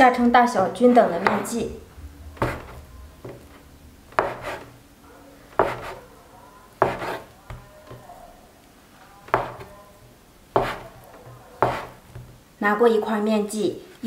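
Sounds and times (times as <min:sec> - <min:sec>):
knife chopping on wooden board: 0:01.2 - 0:01.5, 0:02.4 - 0:03.4, 0:04.1 - 0:04.7, 0:05.6 - 0:06.0, 0:06.8 - 0:08.1, 0:09.3 - 0:09.7, 0:10.5 - 0:12.4.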